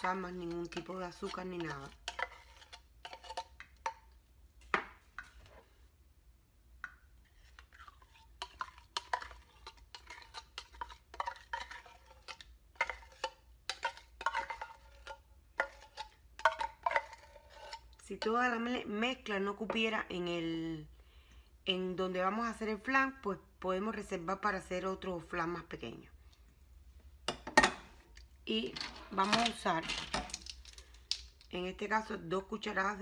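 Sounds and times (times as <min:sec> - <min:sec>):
metal spoon scraping in tin can: 0:00.0 - 0:03.6, 0:07.4 - 0:18.3.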